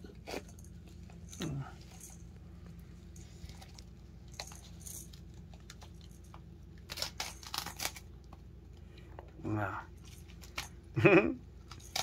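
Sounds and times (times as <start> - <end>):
dog tearing ball scratchy rips: 6.8 - 8.1.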